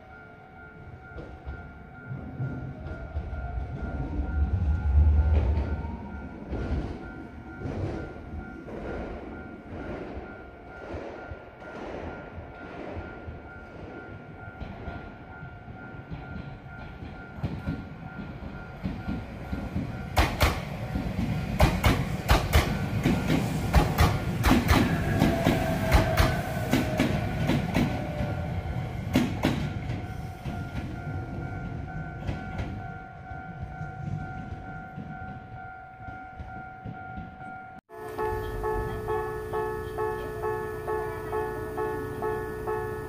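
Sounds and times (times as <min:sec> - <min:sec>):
electric train passing: 0:00.0 - 0:43.0
falling whine of train: 0:00.0 - 0:43.0
wheels clacking over rail joints: 0:15.7 - 0:39.1
level-crossing bell ringing: 0:26.4 - 0:43.0.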